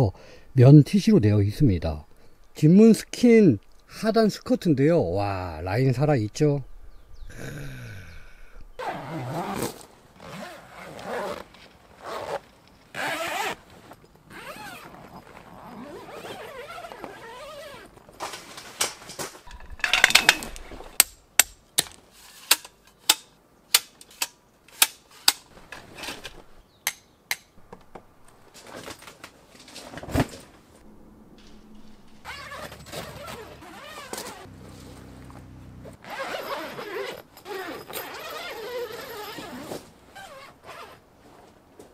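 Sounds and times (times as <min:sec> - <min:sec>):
rustling handling noise: 0:09.4 - 0:21.0, 0:27.8 - 0:30.8, 0:31.4 - 0:35.4.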